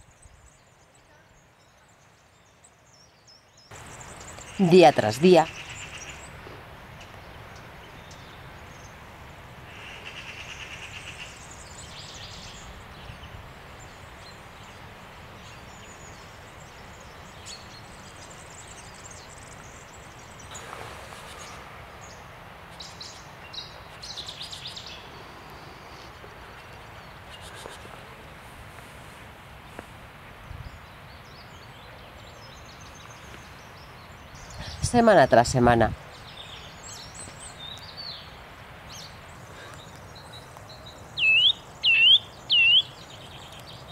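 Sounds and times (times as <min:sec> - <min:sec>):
steady low hiss: 0:00.0 - 0:43.9
bird trill: 0:41.2 - 0:43.0.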